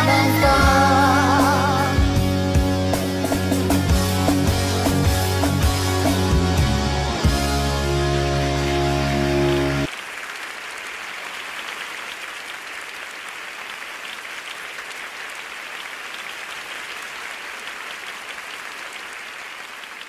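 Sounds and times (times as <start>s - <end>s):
audience applauding: 8.6s - 20.0s.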